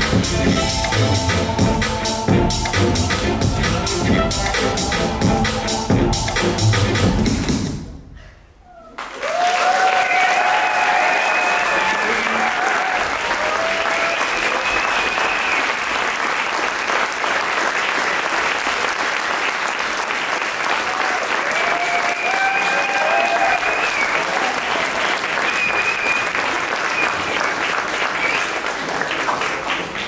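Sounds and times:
high-pitched cheers: 8.9 - 15.8, 20.8 - 27.2
audience applauding: 8.9 - 30.0.

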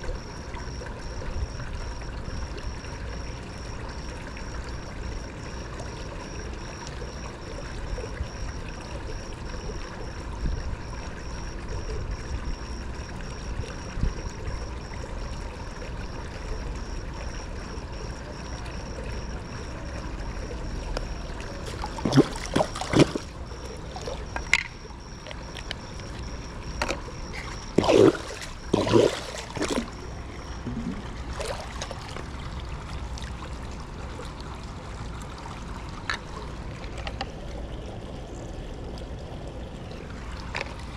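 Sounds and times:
faint high whine: 0.0 - 32.7
water running and trickling: 0.0 - 40.9
short splashes or knocks: 21.6 - 23.4, 26.8 - 32.3.

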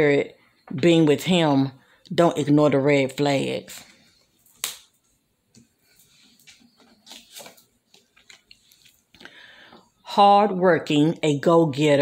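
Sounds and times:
paper cards rustling: 5.9 - 9.2.

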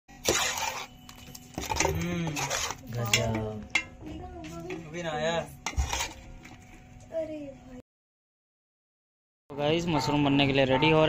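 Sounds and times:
spoon scraping metal pot: 0.2 - 3.9, 5.5 - 6.6.

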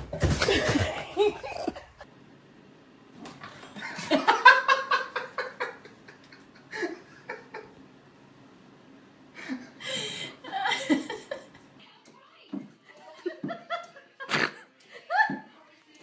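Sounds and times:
person laughing: 0.4 - 2.0, 9.4 - 11.5.

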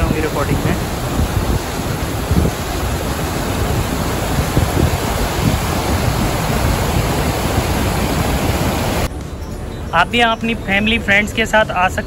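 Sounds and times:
river rushing over rapids: 0.0 - 9.1
wind buffeting microphone: 0.0 - 9.1.

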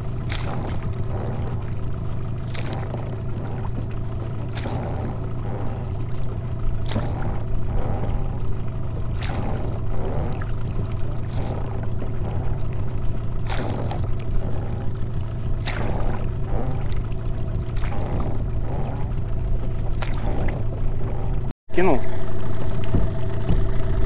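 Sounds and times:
oars stroking through water: 0.0 - 24.0
wind rumble on microphone: 22.6 - 24.0.

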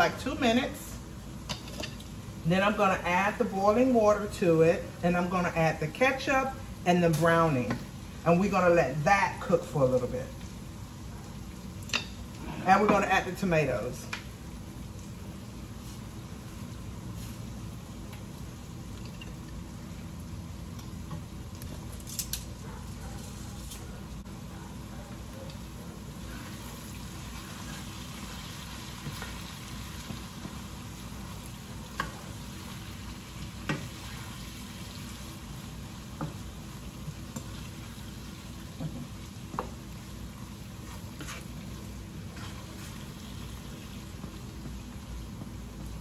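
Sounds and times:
oil sizzling in a pan: 26.1 - 46.0.

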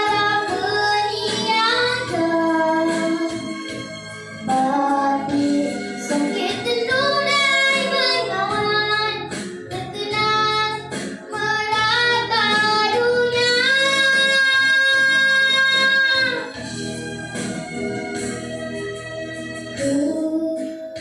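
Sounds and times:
girl singing into a microphone: 0.0 - 3.4, 4.4 - 16.5, 19.8 - 21.0
backing music: 0.0 - 21.0.

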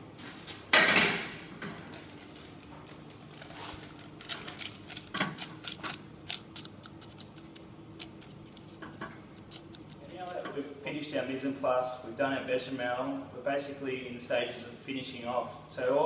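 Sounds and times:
paper crinkling and crackling: 1.8 - 10.5.

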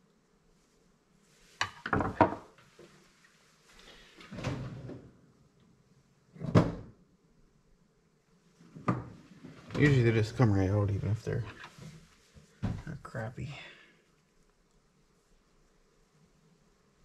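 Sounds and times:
objects knocking on workbench: 1.6 - 2.5, 8.8 - 9.2.

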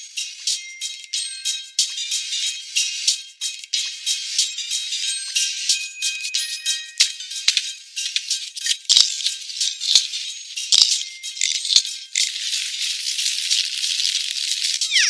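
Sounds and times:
background music: 0.0 - 15.0
shaker rattling: 7.5 - 10.1, 10.7 - 15.0.

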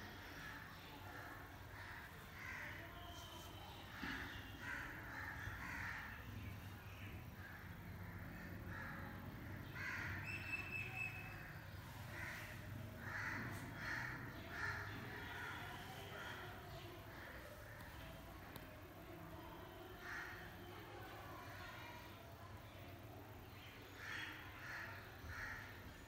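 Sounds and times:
crows cawing: 1.7 - 2.9, 4.0 - 6.4, 7.4 - 16.5, 20.0 - 20.6, 23.9 - 26.0.

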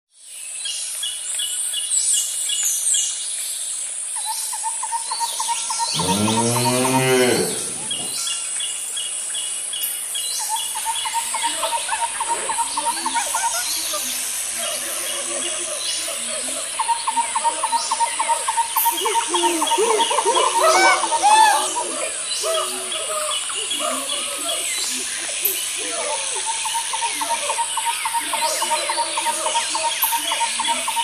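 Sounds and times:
insects buzzing and trilling: 0.2 - 31.0
birds chirping: 5.0 - 8.9, 9.5 - 31.0
cow mooing: 6.0 - 8.2.

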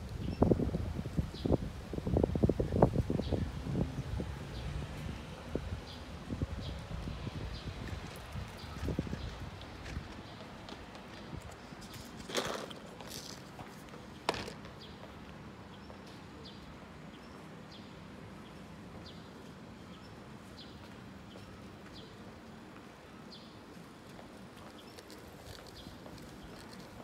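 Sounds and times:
street background noise: 0.0 - 27.0
footsteps on pavement: 6.6 - 16.2, 23.7 - 27.0.

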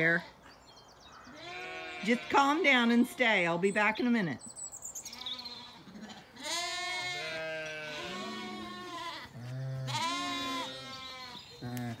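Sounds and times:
sheep bleating: 1.3 - 3.2, 5.0 - 12.0.

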